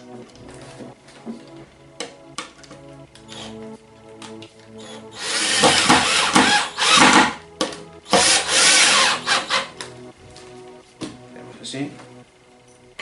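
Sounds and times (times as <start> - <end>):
drill driving screws: 3.3 - 3.5, 4.8 - 7.4, 8.1 - 9.7.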